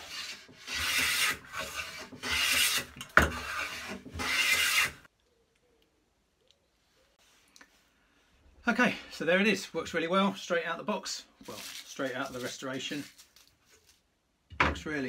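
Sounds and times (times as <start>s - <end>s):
hand plane taking shavings: 0.0s - 5.1s.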